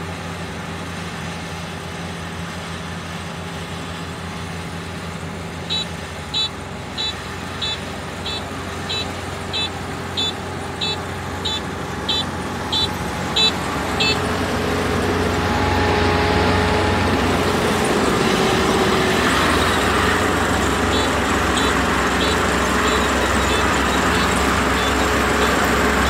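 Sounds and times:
combine harvester engine running: 0:00.0 - 0:26.0
high electronic beeper: 0:05.7 - 0:14.2, 0:19.4 - 0:25.7.

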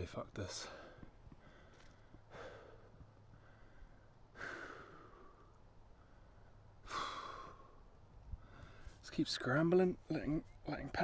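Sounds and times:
man breathing: 0:00.6 - 0:09.0
man sighing: 0:06.8 - 0:07.8.

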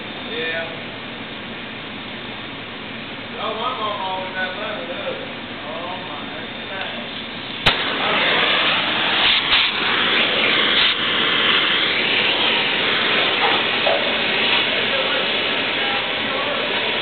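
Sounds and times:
cutting torch hissing: 0:03.2 - 0:17.0
cutting torch ignition crack: 0:06.8 - 0:17.0.

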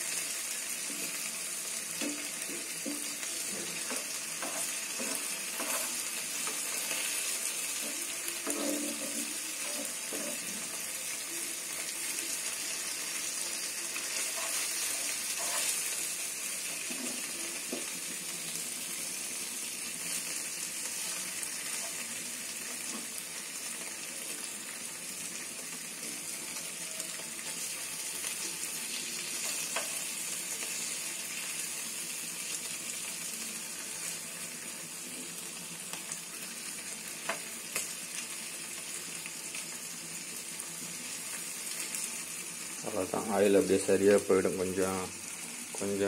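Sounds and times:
fish sizzling in oil: 0:00.0 - 0:46.0
metal spoon scraping pan: 0:02.0 - 0:07.0, 0:07.8 - 0:10.6, 0:14.2 - 0:16.0.

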